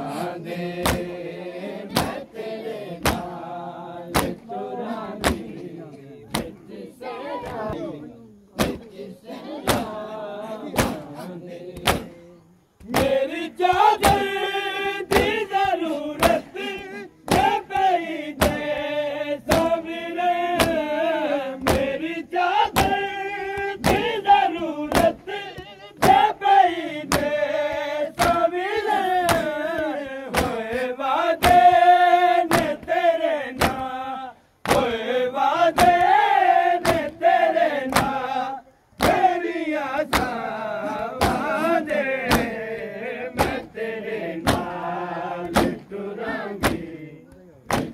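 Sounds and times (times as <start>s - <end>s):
men chanting in unison: 0.0s - 47.9s
hands beating on chests: 1.9s - 2.2s, 3.0s - 3.3s, 4.1s - 4.4s, 5.2s - 5.5s, 8.6s - 8.8s, 9.7s - 10.0s, 10.7s - 11.1s, 11.8s - 12.1s, 12.8s - 14.3s, 20.5s - 20.8s, 22.7s - 23.0s, 23.6s - 24.2s, 24.9s - 26.3s, 27.0s - 28.4s, 29.2s - 30.7s, 32.5s - 32.9s, 33.6s - 33.8s, 36.8s - 37.2s, 37.9s - 38.2s, 39.0s - 39.4s, 40.0s - 42.6s, 43.4s - 43.7s, 44.4s - 44.8s, 45.4s - 45.9s, 46.6s - 46.9s, 47.6s - 47.9s.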